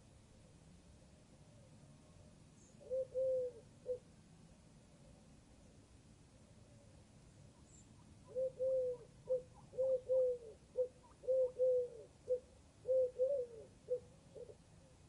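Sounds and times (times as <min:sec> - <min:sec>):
dove cooing: 0:02.8 - 0:04.1, 0:08.2 - 0:15.0.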